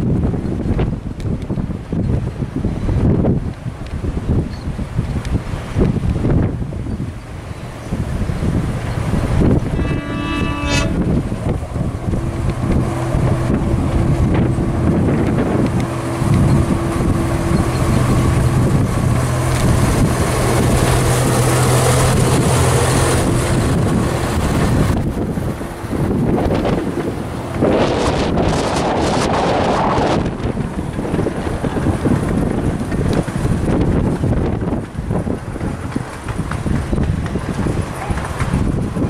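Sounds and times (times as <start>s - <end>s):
diesel locomotive engine running: 0.0s - 39.0s
locomotive horn blast: 9.2s - 26.6s.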